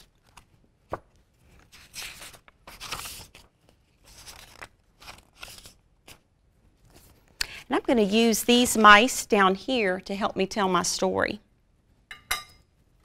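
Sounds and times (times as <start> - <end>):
pages turning: 0.0 - 7.4.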